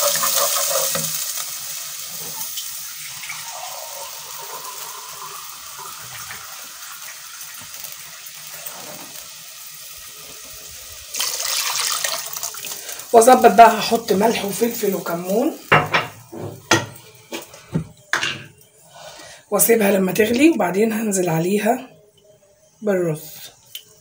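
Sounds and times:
water hissing and bubbling in hot pot: 0.0 - 16.6
liquid pouring with splashing rush: 11.1 - 13.0.

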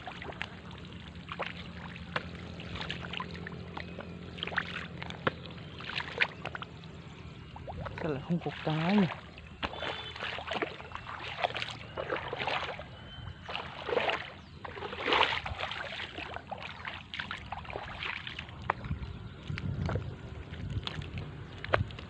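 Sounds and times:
wading splashes in water: 0.0 - 22.0.

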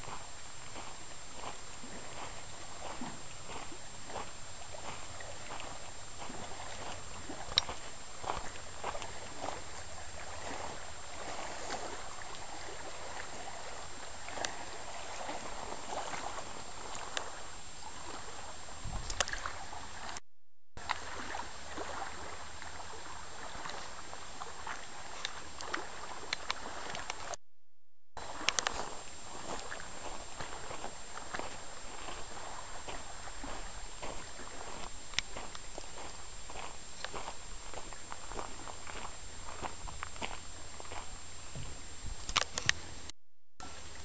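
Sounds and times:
waves lapping on pebble shore: 0.0 - 18.5, 28.2 - 41.2.

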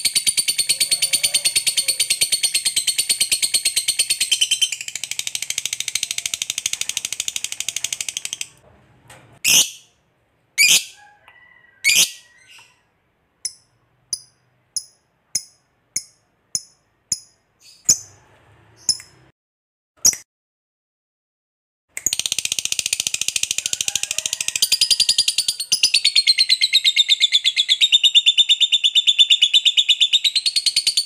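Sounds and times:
bird chattering trill: 0.0 - 8.6, 10.6 - 11.0, 24.6 - 31.0.

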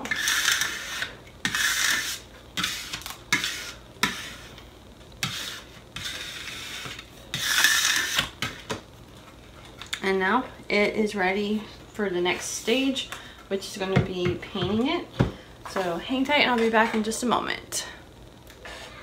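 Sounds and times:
squeegee rubbing over vinyl: 0.0 - 4.5, 5.2 - 8.3.

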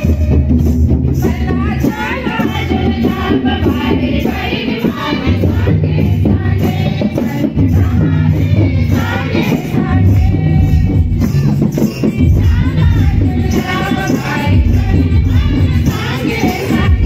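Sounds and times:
group singing with accompaniment: 0.0 - 17.0
woman singing into microphone: 1.2 - 11.2, 12.2 - 17.0.

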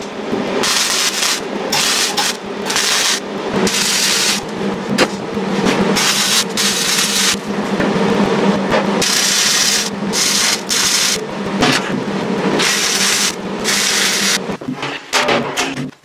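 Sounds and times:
welder arc crackling: 0.0 - 5.4, 6.0 - 7.5, 9.0 - 11.6, 12.3 - 14.6.

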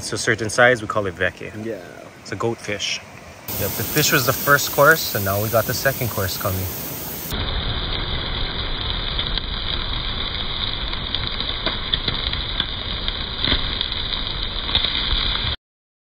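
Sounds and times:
campfire crackling and popping: 0.0 - 15.6
meat sizzling on grill: 3.5 - 15.6.

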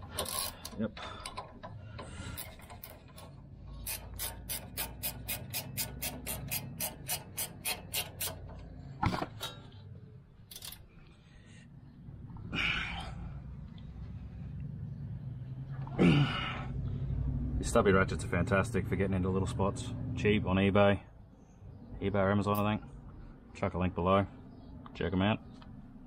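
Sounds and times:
ratchet spanner clicking: 0.0 - 8.7, 10.5 - 10.8.

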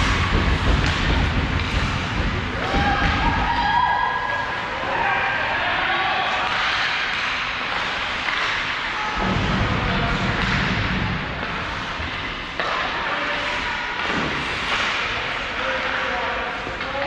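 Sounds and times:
low rumble: 0.0 - 4.9, 9.2 - 12.2
hockey rink noise: 0.0 - 17.0.

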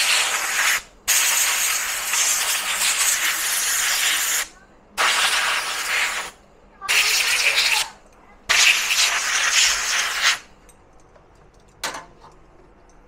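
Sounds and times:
compressed air blow gun blasting: 0.0 - 7.9, 8.5 - 10.5.

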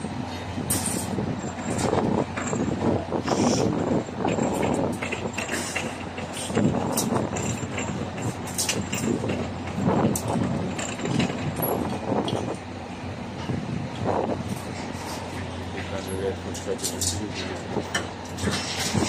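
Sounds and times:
heavy diesel engine running: 0.0 - 19.0
metal knocks and clanks: 3.9 - 12.6, 14.5 - 19.0.

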